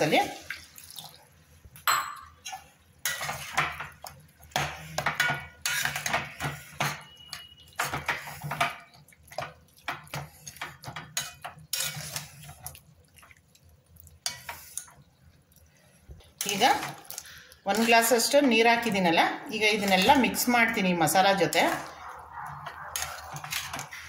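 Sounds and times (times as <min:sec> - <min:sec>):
metal spoon scraping a steel pot: 0:02.4 - 0:03.9, 0:04.5 - 0:08.8, 0:10.1 - 0:12.6, 0:17.7 - 0:18.6, 0:19.6 - 0:24.0.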